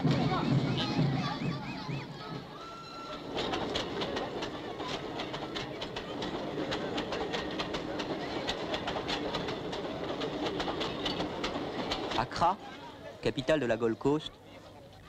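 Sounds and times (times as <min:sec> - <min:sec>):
freight train rolling past: 0:00.0 - 0:13.2
wheels clattering over rail joints: 0:03.1 - 0:12.6.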